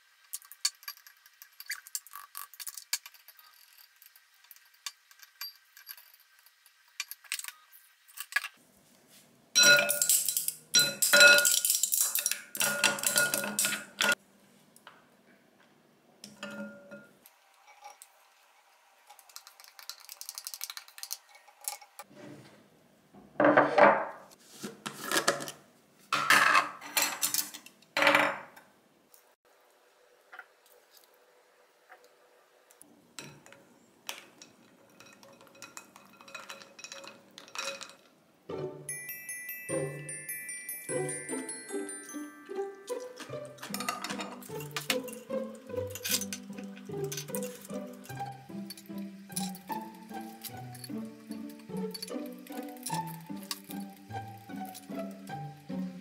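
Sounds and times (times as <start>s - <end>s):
ice cubes clattering into bowl: 9.6s - 14.2s, 34.1s - 38.1s, 42.9s - 55.3s
utensils clinking on glass bowl: 9.6s - 14.2s, 16.3s - 18.1s, 26.2s - 27.6s, 33.2s - 38.1s, 38.9s - 55.8s.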